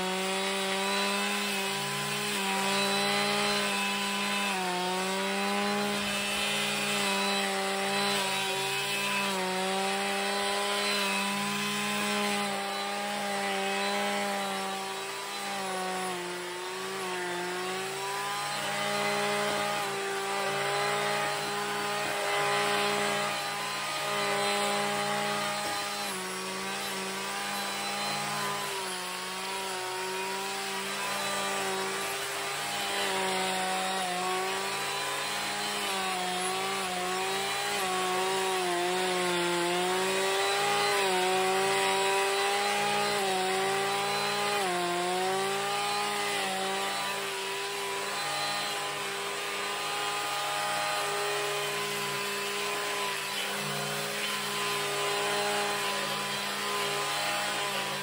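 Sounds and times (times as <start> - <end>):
clearing saw engine running: 0.0 - 58.0
saw blade cutting stalks: 0.0 - 58.0.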